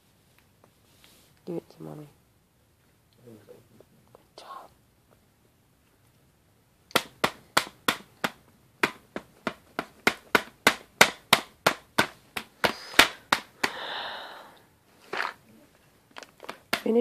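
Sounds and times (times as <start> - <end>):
hand slapping plastic lid: 6.9 - 13.8, 16.2 - 17.0.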